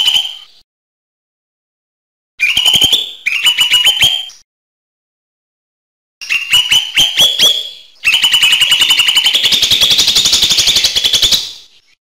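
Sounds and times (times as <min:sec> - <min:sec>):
bird singing with fast trill: 0:00.0 - 0:00.6, 0:02.4 - 0:04.4, 0:06.2 - 0:12.0.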